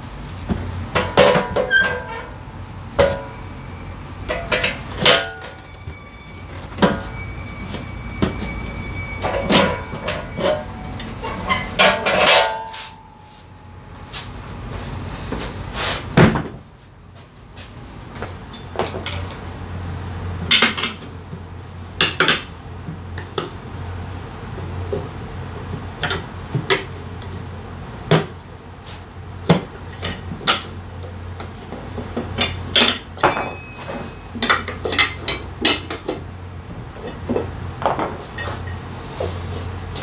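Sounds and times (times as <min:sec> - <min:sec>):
tire levers clanking on metal rim: 0:00.9 - 0:02.4, 0:03.0 - 0:03.5, 0:04.2 - 0:13.3, 0:31.6 - 0:36.3.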